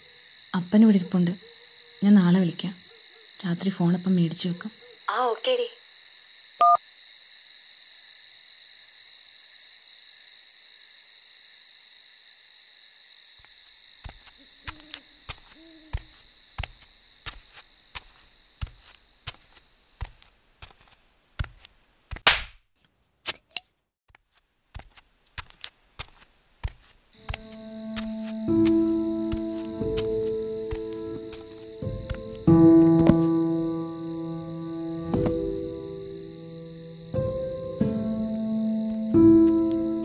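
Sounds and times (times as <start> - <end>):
crickets chirping: 0.0 - 21.6, 26.0 - 40.0
electronic phone beep: 6.6 - 6.8.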